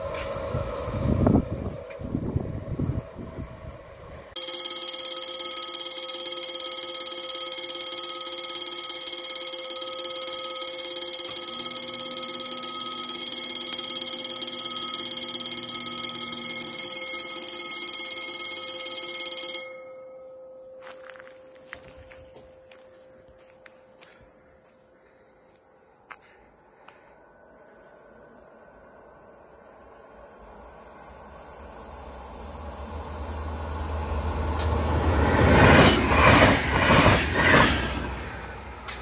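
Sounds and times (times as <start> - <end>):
train rumbling past: 0.0 - 4.6, 31.0 - 39.0
level-crossing warning bell: 4.4 - 25.6, 30.6 - 39.0.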